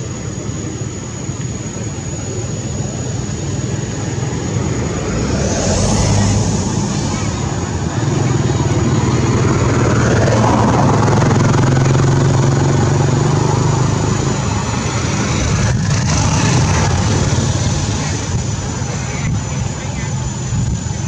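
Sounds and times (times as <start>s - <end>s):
motor engine running: 0.0s - 21.0s.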